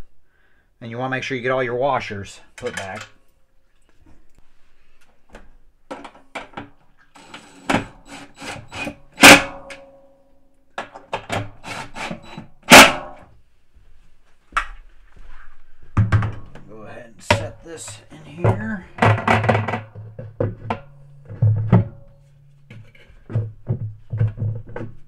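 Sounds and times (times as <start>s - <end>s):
loud metallic clanks: 9.2s - 9.9s, 12.6s - 13.3s.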